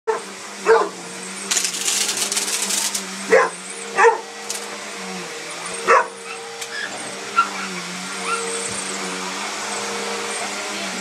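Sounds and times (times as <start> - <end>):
dog barking: 0.1 - 1.0, 3.3 - 4.2, 5.8 - 6.4
vacuum cleaner humming: 0.1 - 11.0
vacuum cleaner hiss: 0.2 - 11.0.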